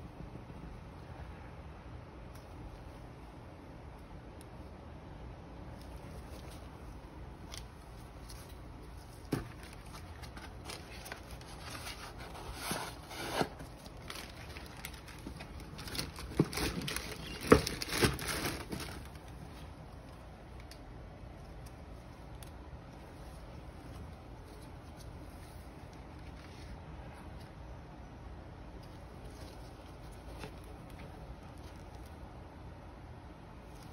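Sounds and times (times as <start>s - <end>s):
tissue paper and cardboard rustling: 5.8s - 20.1s.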